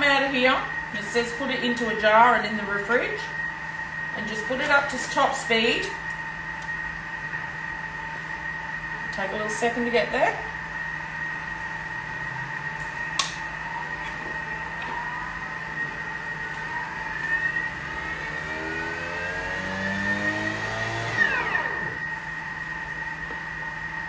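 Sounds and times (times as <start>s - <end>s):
blender motor whine: 11.8s - 24.0s.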